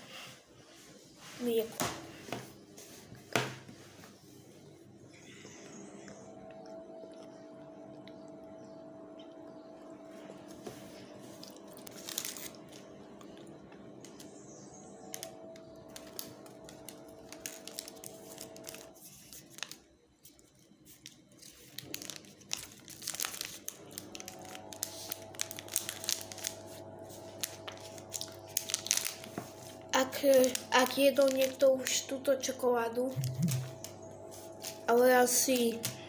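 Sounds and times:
wrapper crinkling: 11.4s - 12.9s, 15.1s - 32.1s.

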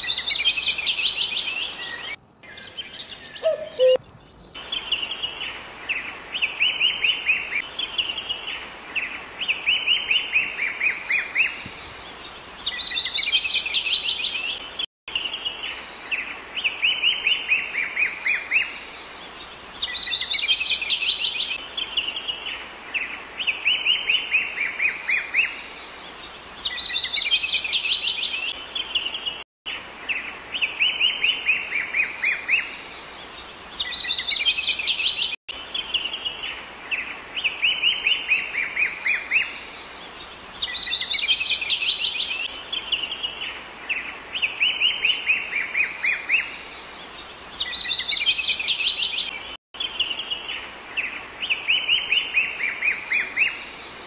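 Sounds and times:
songbird trilling: 2.6s - 4.0s.

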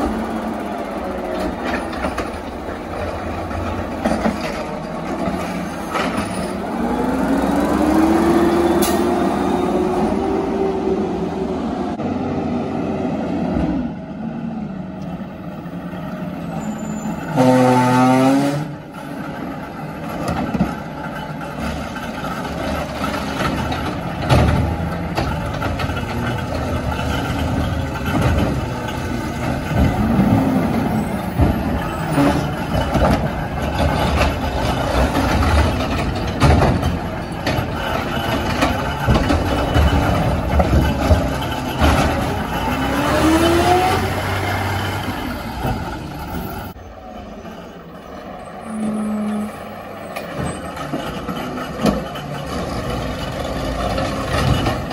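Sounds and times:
knocks and clatter: 0.0s - 9.2s, 18.9s - 46.8s, 50.1s - 54.9s
garbage truck engine running: 0.0s - 12.3s, 18.8s - 54.9s
loud pitched horn blast: 17.3s - 18.7s.

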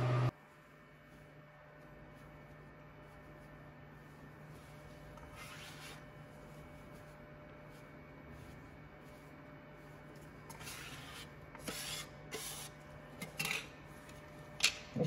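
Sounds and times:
machine low hum: 0.0s - 11.6s
brush swishing metal powder: 2.0s - 12.9s.

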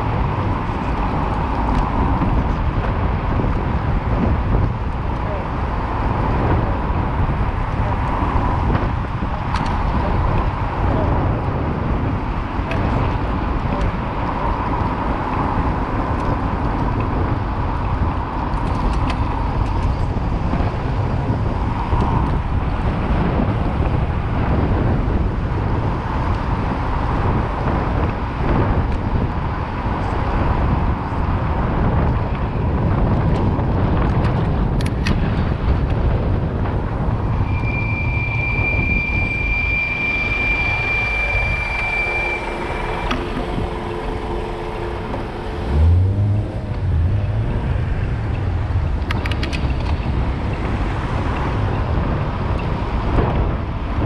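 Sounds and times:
city street traffic: 0.0s - 54.0s
wind rushing over microphone: 0.0s - 54.0s
short low rumble: 35.2s - 50.8s
high-pitched squeal: 37.0s - 47.3s.

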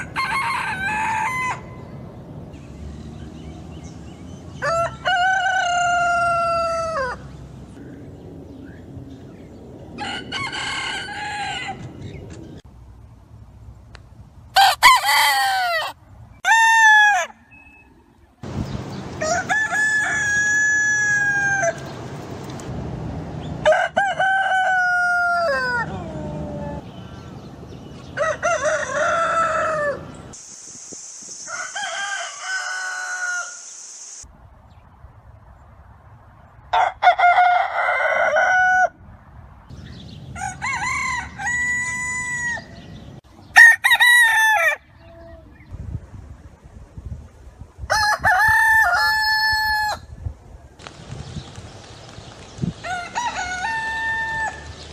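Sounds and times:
rooster crowing: 0.0s - 1.7s, 4.6s - 7.2s, 10.0s - 11.9s, 14.6s - 17.4s, 19.2s - 21.9s, 23.6s - 26.8s, 28.2s - 30.1s, 31.5s - 33.6s, 36.7s - 39.0s, 40.4s - 42.8s, 43.6s - 44.9s, 47.9s - 50.0s, 52.8s - 54.7s
background hiss: 30.1s - 34.5s.

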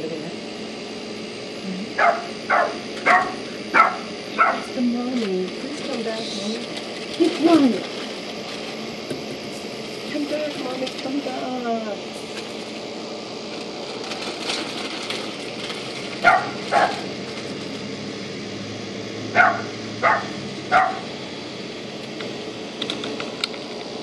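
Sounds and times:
dog barking: 2.0s - 4.7s, 16.2s - 17.1s, 19.3s - 21.1s.

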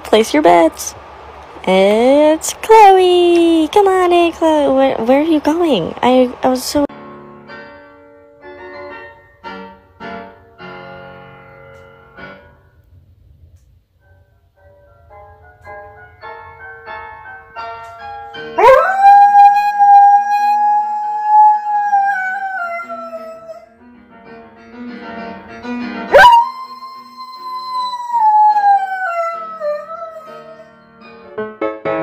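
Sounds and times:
dog howling: 18.6s - 23.6s, 26.1s - 30.6s.

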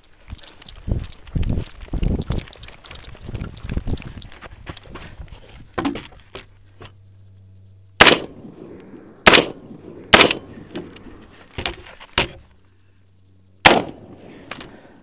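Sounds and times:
rifle gunshots: 8.0s - 10.6s, 13.6s - 14.2s.

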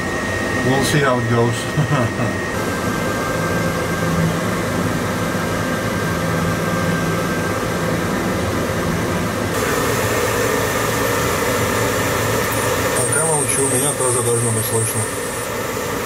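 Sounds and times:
machinery hum and hiss: 0.0s - 16.0s
faint thin whine: 10.2s - 16.0s.

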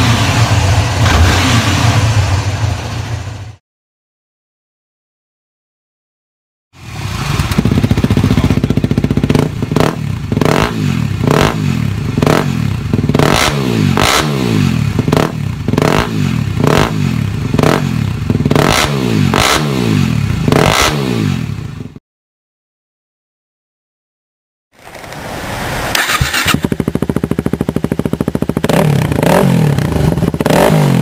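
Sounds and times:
motorcycle engine revving: 0.0s - 3.6s, 6.8s - 22.0s, 26.0s - 31.0s.

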